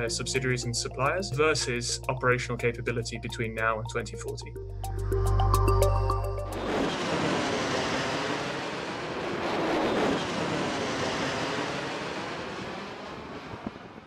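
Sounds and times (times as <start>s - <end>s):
aircraft roar in flight: 4.8s - 14.0s.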